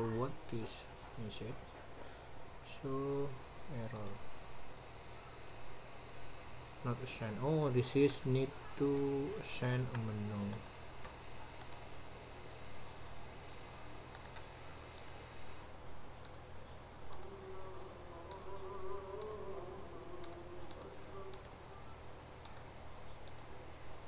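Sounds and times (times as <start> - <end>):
computer mouse clicking: 3.9 - 4.2, 9.9 - 11.8, 14.1 - 15.2, 16.2 - 16.5, 17.1 - 17.4, 18.3 - 18.6, 19.2 - 19.4, 20.2 - 21.6, 22.4 - 23.5.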